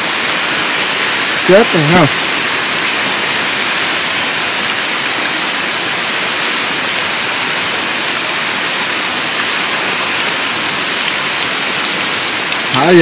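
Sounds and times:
steady rain: 0:00.0 - 0:13.0.

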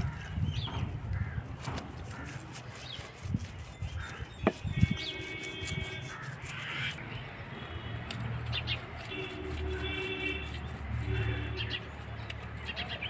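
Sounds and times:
crows cawing: 0:00.0 - 0:00.4, 0:01.1 - 0:02.8, 0:03.9 - 0:04.8, 0:06.0 - 0:07.0.

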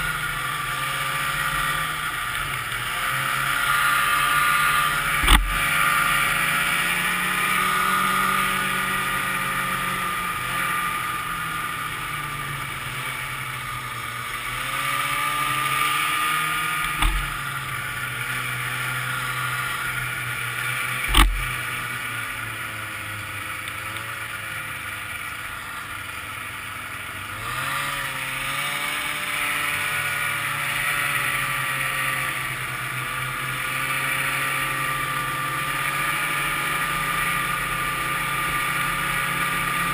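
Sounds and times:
snowmobile engine running: 0:00.0 - 0:39.9
snowmobile track noise: 0:00.0 - 0:39.9
wind: 0:00.0 - 0:39.9
sharp thumps: 0:05.2 - 0:05.8, 0:16.8 - 0:17.5, 0:21.1 - 0:21.6.

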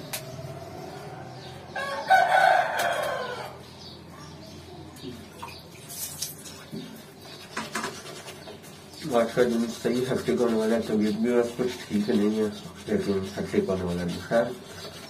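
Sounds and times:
rooster crowing: 0:00.8 - 0:03.6.

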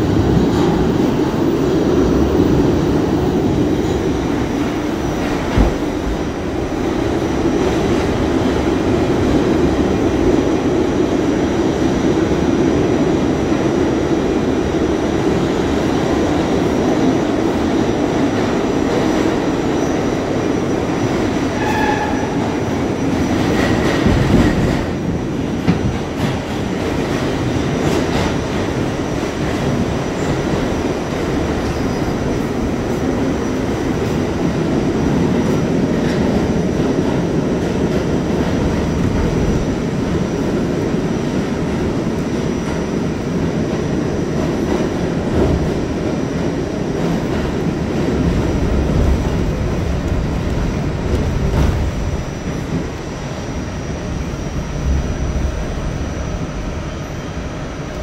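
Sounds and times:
subway car rumbling in tunnel: 0:00.0 - 0:58.0.

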